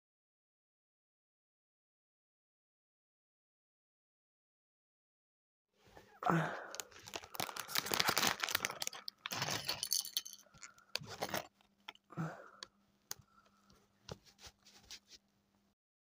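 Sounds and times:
plastic bag crinkling: 0:06.7 - 0:12.0
plastic pieces rattling and clicking: 0:06.7 - 0:12.1.

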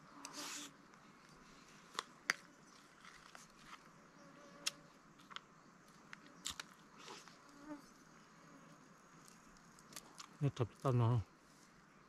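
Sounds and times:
crunchy chewing: 0:04.6 - 0:07.7, 0:09.2 - 0:10.4.

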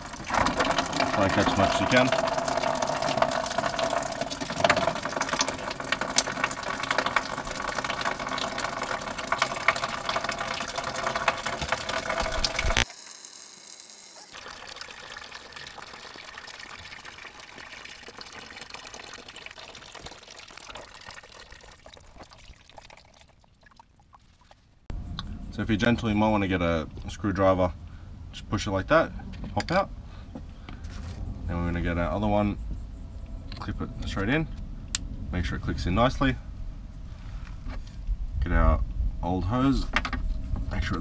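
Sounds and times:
thin trickle of fluid: 0:00.0 - 0:12.9, 0:13.8 - 0:24.8.

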